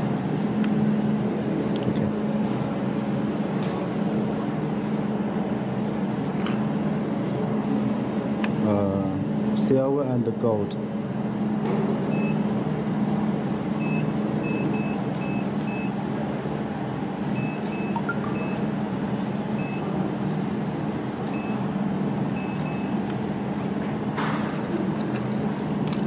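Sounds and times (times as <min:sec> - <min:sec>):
steady low hum: 0:00.0 - 0:26.0
short electronic key beeps: 0:13.8 - 0:16.0, 0:17.3 - 0:18.8, 0:19.6 - 0:19.9, 0:21.3 - 0:21.6, 0:22.3 - 0:23.0.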